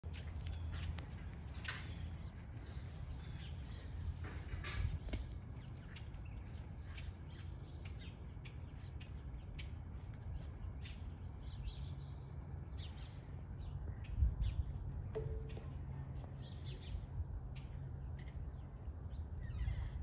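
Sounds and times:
birds chirping: 0.5s - 20.0s
steady low rumble: 12.7s - 20.0s.

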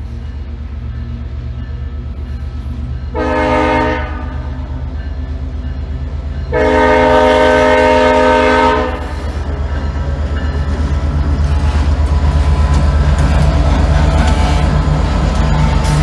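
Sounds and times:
locomotive horn blast: 3.1s - 4.6s, 6.5s - 9.3s, 14.1s - 14.9s.

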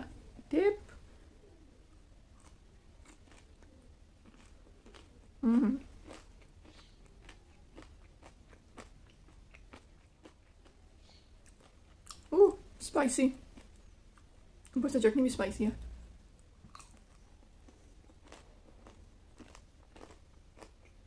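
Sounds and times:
crunching fried food being chewed: 2.3s - 12.4s, 16.4s - 21.0s.

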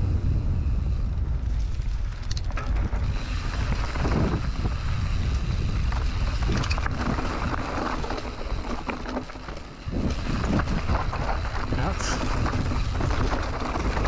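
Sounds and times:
wind buffeting microphone: 0.0s - 14.0s
bike clicks and rattles: 1.0s - 14.0s
tyres crunching over stones: 5.9s - 14.0s.

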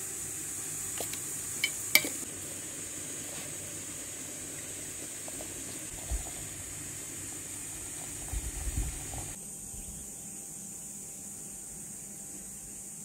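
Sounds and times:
hot water pouring from tap: 0.0s - 9.4s
steady high hiss: 0.0s - 13.0s.

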